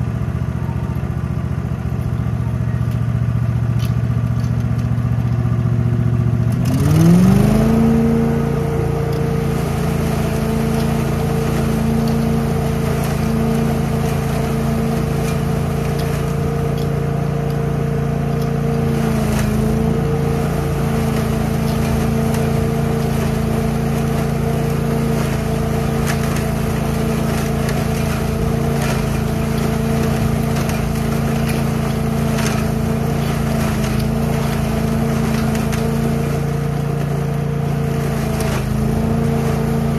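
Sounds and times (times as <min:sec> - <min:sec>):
leaf vacuum engine revving: 0:05.0 - 0:39.9
hose sucking leaves: 0:06.6 - 0:39.9.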